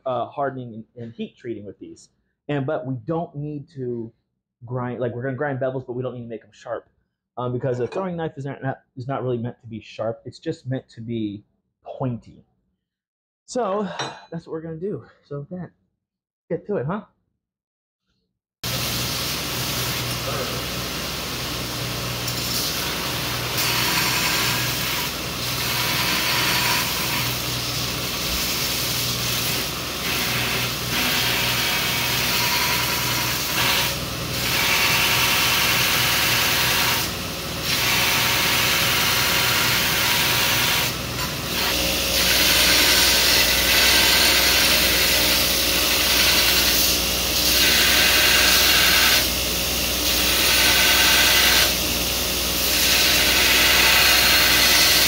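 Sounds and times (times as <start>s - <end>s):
belt grinder motor hum: 18.7s - 55.0s.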